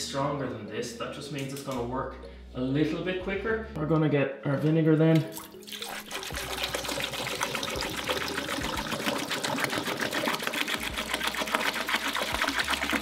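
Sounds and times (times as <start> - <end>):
liquid pouring into toilet bowl: 5.3 - 13.0.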